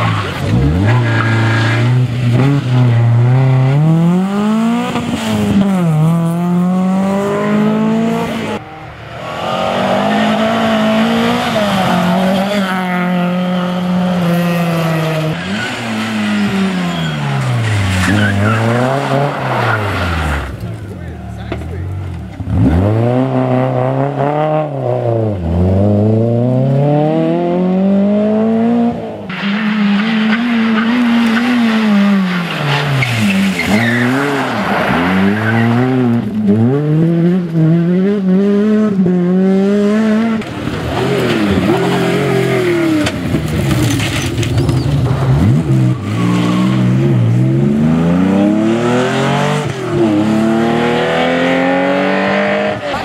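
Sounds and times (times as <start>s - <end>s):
rally car engines revving: 0.0s - 53.0s
tyres skidding on gravel: 9.2s - 23.0s, 29.3s - 36.4s, 40.4s - 47.3s.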